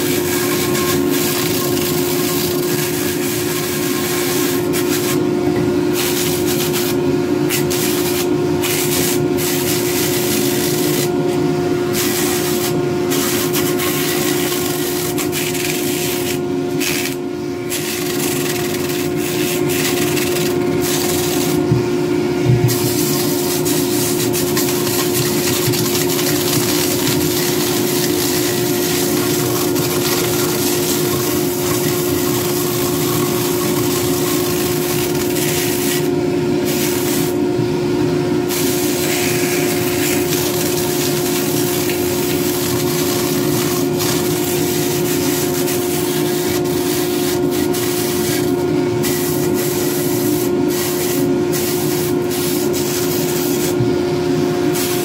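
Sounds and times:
sanding disc scratching wood: 11.9s - 21.7s, 22.7s - 36.1s, 38.5s - 53.8s.

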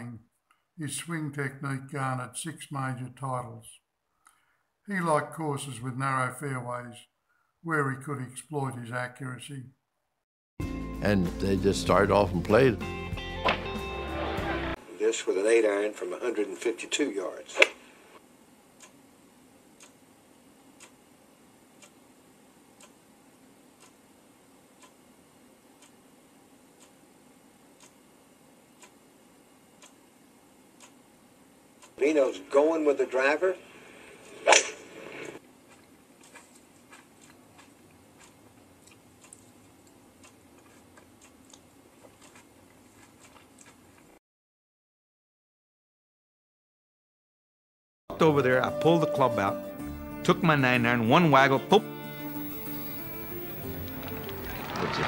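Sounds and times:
faint ticks and clicks: 18.8s - 19.1s, 19.7s - 21.0s, 21.7s - 23.1s, 23.7s - 28.2s, 28.8s - 29.1s, 29.7s - 30.1s, 30.7s - 31.1s, 35.7s - 44.1s
clock ticking faintly: 19.8s - 20.0s, 20.7s - 21.0s, 21.7s - 22.0s, 22.7s - 23.0s, 23.7s - 24.1s, 24.7s - 26.1s, 26.7s - 28.1s, 28.7s - 29.0s, 29.7s - 30.0s, 30.7s - 31.0s
low hiss: 48.1s - 54.9s.

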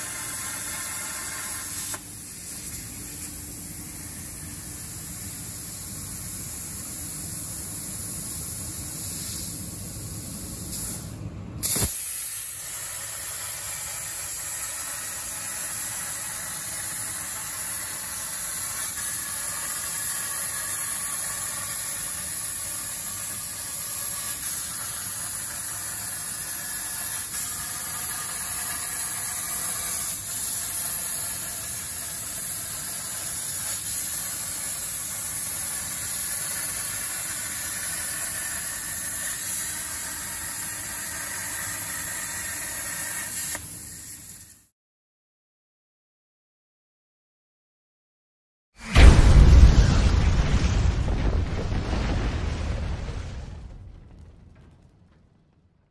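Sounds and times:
plasma torch cutting hiss: 0.0s - 44.7s
sharp crack: 48.8s - 55.9s.

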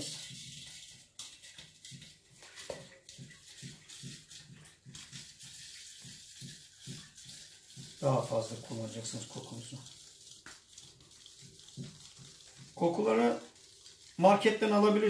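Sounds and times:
liquid sloshing in a pot: 0.0s - 15.0s.

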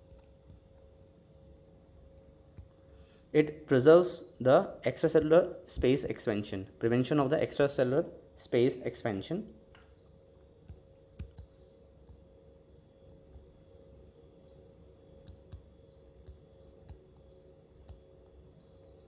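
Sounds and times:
faint steady hum: 0.0s - 19.0s
stylus tapping on glass screen: 10.7s - 12.2s, 15.2s - 18.4s.

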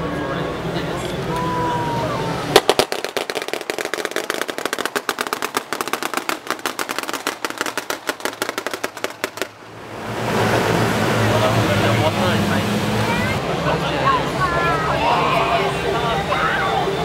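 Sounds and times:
machine-gun fire: 2.6s - 9.5s.

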